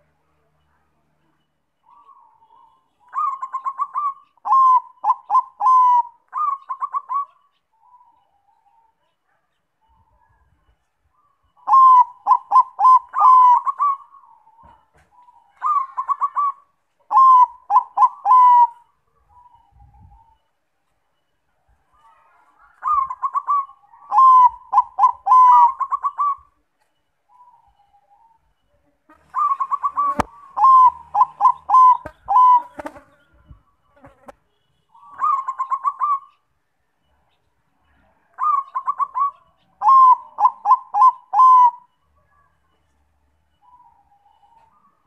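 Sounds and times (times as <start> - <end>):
dove cooing: 1.8 - 9.0, 11.2 - 20.5, 21.9 - 26.6, 29.1 - 33.7, 35.0 - 36.4, 37.9 - 42.5.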